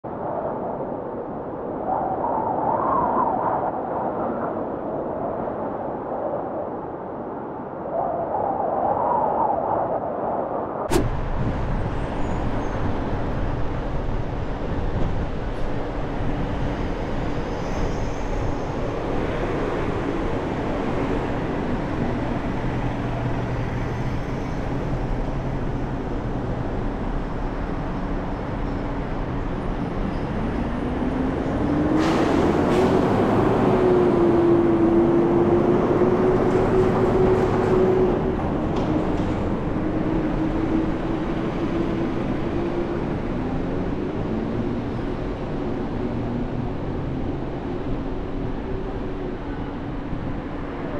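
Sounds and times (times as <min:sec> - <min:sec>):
car road and engine noise: 0:10.8 - 0:50.9.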